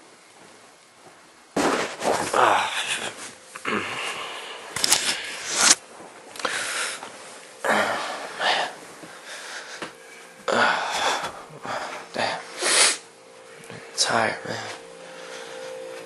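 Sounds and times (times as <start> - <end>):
person breathing heavily: 2.1 - 5.7, 6.4 - 13.0, 15.0 - 15.9.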